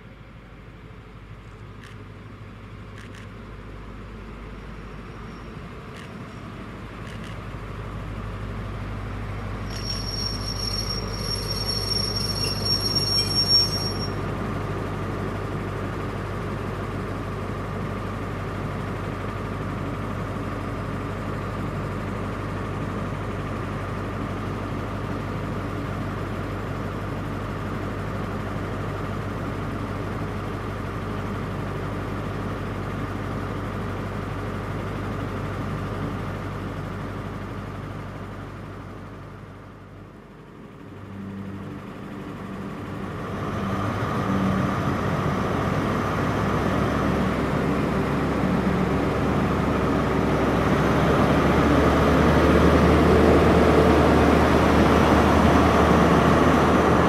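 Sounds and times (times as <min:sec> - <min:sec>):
diesel engine humming: 0:07.6 - 0:22.6
train brake squeal: 0:09.6 - 0:14.3.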